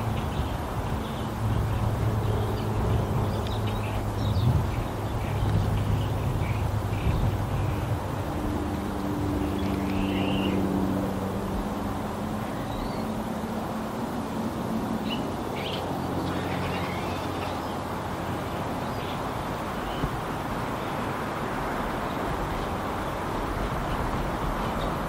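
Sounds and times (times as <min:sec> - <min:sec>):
small birds chirping: 0:00.0 - 0:10.7, 0:12.0 - 0:13.2, 0:14.2 - 0:25.0
background hiss: 0:00.0 - 0:25.0
propeller plane droning overhead: 0:00.0 - 0:25.0.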